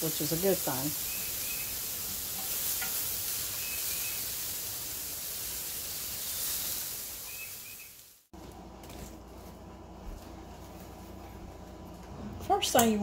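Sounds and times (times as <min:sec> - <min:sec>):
pork chops sizzling on a grill: 0:00.0 - 0:08.3
bird chirps: 0:01.0 - 0:01.9, 0:03.5 - 0:04.3, 0:07.2 - 0:08.0.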